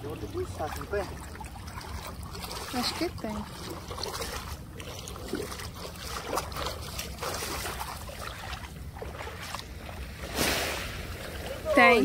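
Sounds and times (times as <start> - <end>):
water splashes: 0.0 - 12.0.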